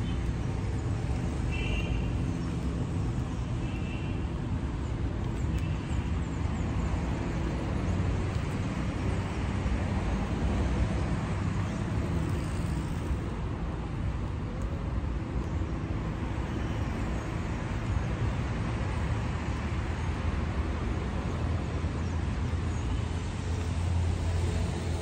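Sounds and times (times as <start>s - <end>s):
cars passing: 0.0s - 25.0s.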